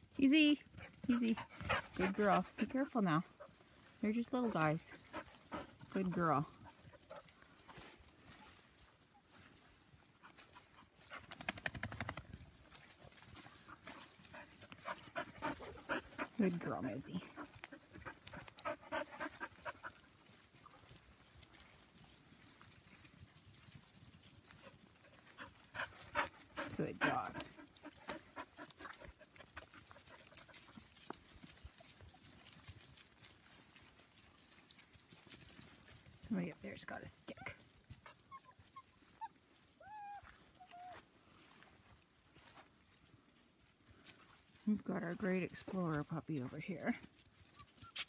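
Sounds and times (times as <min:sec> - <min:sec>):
faint rustling in leaves: 0:00.0 - 0:48.0
footsteps in dry leaves: 0:29.8 - 0:36.2.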